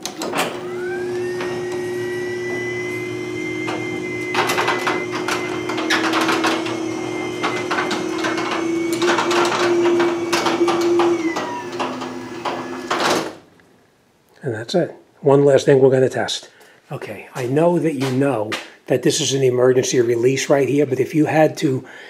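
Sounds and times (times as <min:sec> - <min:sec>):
garage door opener motor whine: 0:00.0 - 0:13.4
garage door rattling: 0:00.0 - 0:13.5.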